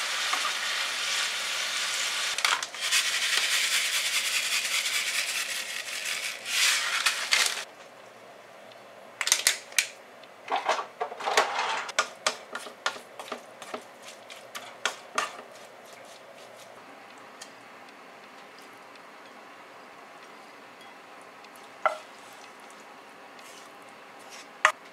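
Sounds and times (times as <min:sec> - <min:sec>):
wooden spatula scraping a pan: 0:23.4 - 0:24.7.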